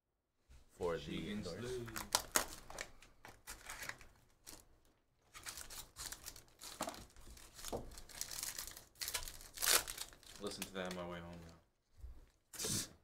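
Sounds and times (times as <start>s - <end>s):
foil pack crinkling: 1.9s - 4.7s, 5.3s - 11.0s.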